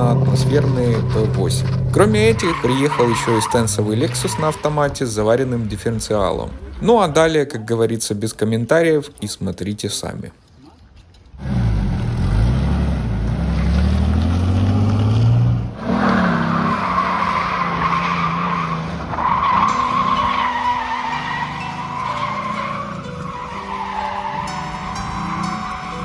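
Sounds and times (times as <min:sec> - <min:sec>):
car engine revving: 0:00.0 - 0:06.8, 0:11.4 - 0:26.0
tyres squealing: 0:00.0 - 0:09.1, 0:15.8 - 0:26.0.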